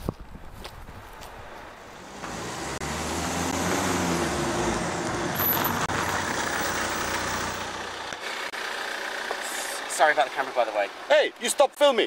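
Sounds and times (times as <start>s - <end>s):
car engine and tyre noise: 0.0s - 12.0s.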